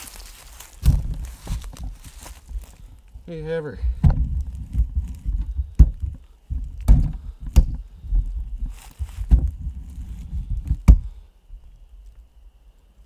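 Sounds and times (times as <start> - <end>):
short rustle: 0.0 - 3.1
wind rumble: 0.0 - 11.8
sharp knocks: 5.8 - 7.8.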